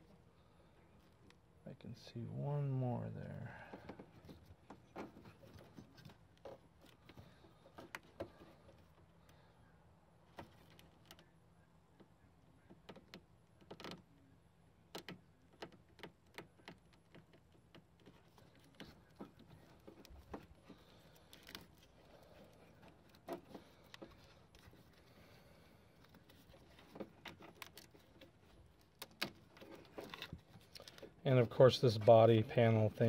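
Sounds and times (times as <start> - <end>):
plastic wiring loom clicks and rustles: 12.7 - 14.1, 14.9 - 25.3, 25.9 - 33.0.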